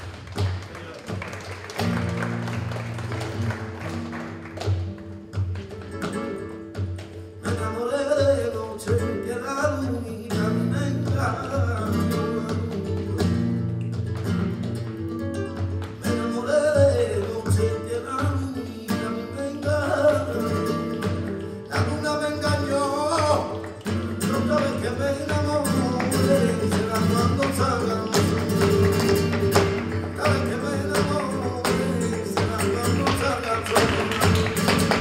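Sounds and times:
acoustic guitar: 0.0s - 35.0s
hand clapping: 0.0s - 35.0s
man singing: 7.4s - 13.3s, 16.0s - 35.0s.

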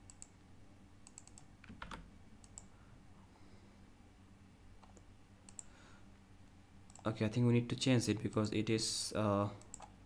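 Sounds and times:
keyboard and mouse clicks: 0.0s - 0.4s, 1.0s - 2.7s, 4.8s - 5.7s, 9.6s - 10.0s.

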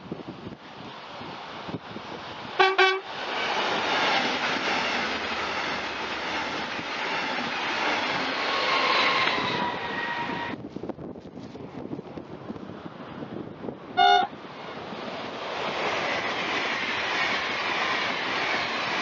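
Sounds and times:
high train whine: 0.0s - 19.0s
train wheel and rail noise: 0.0s - 19.0s
train horn toots: 2.6s - 3.1s, 14.0s - 14.4s.

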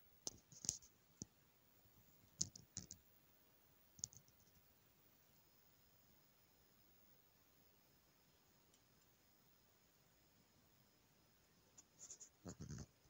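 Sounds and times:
faint sharp clicks and taps: 0.2s - 1.4s, 2.0s - 3.1s, 4.0s - 4.7s, 8.6s - 9.2s.

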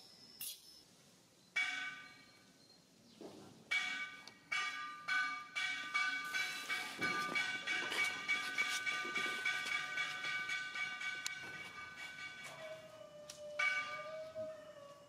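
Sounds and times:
bell ringing: 4.5s - 12.8s.

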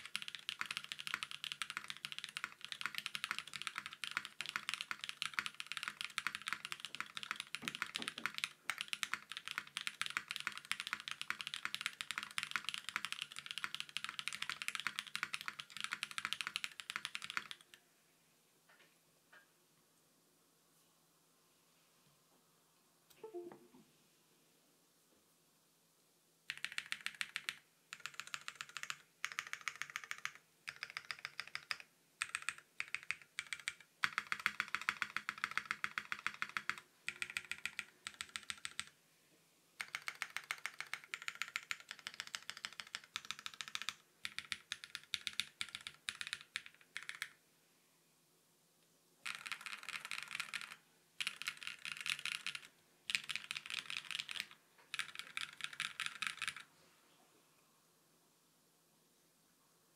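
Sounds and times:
mechanical keyboard typing: 0.0s - 17.8s, 26.5s - 38.9s, 39.8s - 47.4s, 49.2s - 56.7s.

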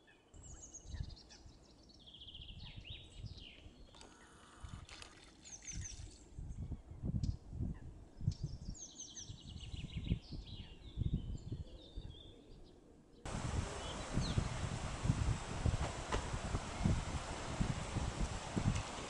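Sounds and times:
wind rumble on microphone: 0.4s - 1.7s, 2.3s - 3.8s, 5.6s - 12.7s, 13.3s - 19.0s
small birds chirping: 13.3s - 19.0s.

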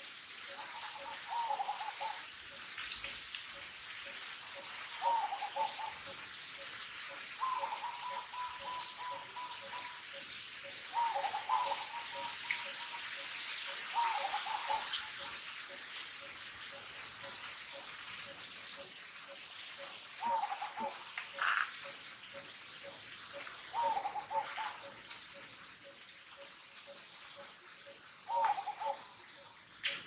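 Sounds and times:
steady hiss: 0.0s - 30.0s
wavering whistle-like animal call: 7.4s - 10.0s.

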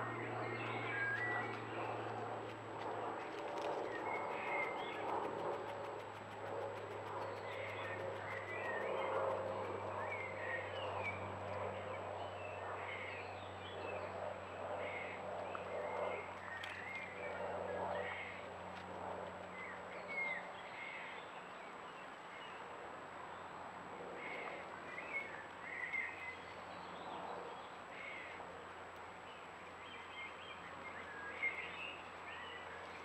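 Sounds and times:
steady low hum: 0.0s - 21.0s
small birds chirping: 0.1s - 2.6s, 3.2s - 11.2s.

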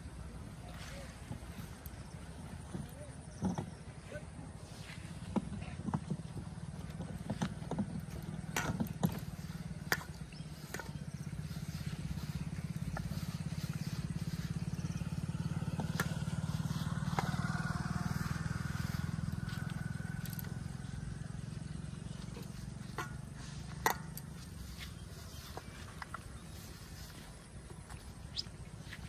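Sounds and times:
small engine running: 4.7s - 27.4s.

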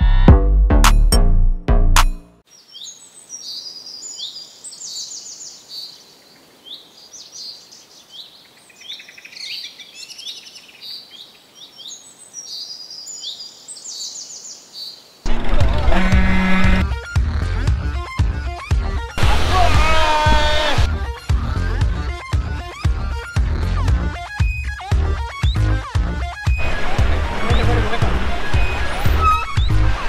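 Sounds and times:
birds chirping: 2.5s - 16.8s, 25.3s - 30.0s.

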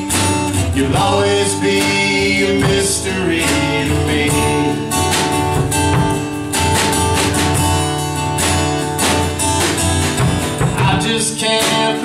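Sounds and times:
acoustic guitar strumming: 0.0s - 12.0s
snare drum played with sticks: 4.6s - 7.8s, 8.4s - 11.9s.

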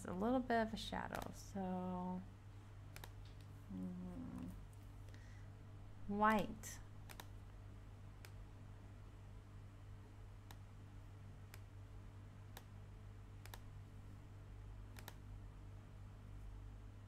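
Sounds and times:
faint low hum: 0.0s - 17.0s
computer mouse clicking: 2.9s - 3.5s, 7.0s - 7.4s, 8.2s - 8.4s, 10.4s - 10.7s, 11.5s - 11.7s, 12.5s - 12.8s, 13.4s - 13.7s, 14.9s - 15.2s.

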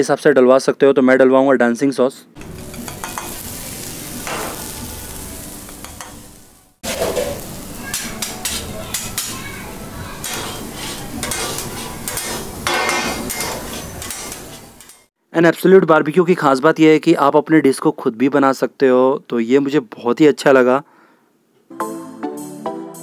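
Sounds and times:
food sizzling on a griddle: 2.4s - 15.1s
metal paddles scraping a griddle: 6.8s - 15.1s.

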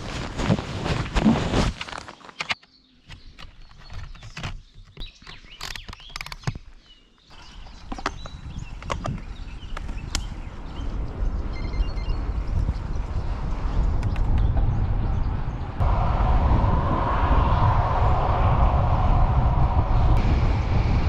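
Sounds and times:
steady rushing noise: 15.6s - 21.0s.

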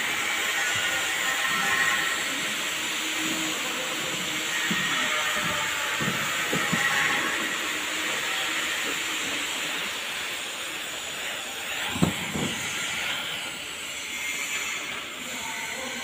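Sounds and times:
welding arc hiss: 0.0s - 16.0s.

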